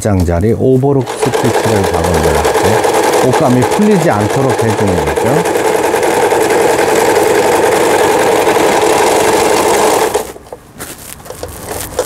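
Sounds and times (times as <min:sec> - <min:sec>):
sewing machine running: 0:00.9 - 0:10.4
fabric handling: 0:06.9 - 0:12.0.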